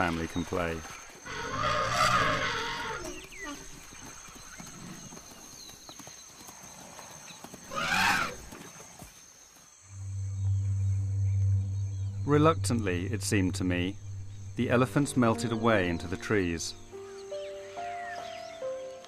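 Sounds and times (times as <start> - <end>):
elephants trumpeting: 1.3 - 3.2
low steady hum: 9.9 - 16.9.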